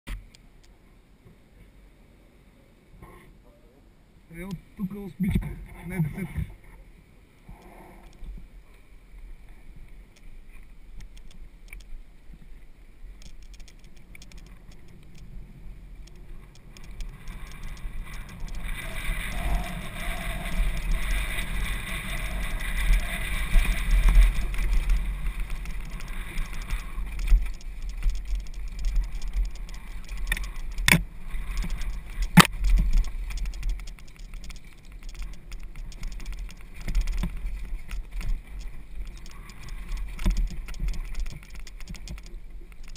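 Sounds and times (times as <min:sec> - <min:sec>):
wind rumbling on microphone: 0:04.3 - 0:42.9
mountain bike rattling on dirt: 0:13.1 - 0:42.9
sharp knocks on rough ground: 0:31.8 - 0:38.4.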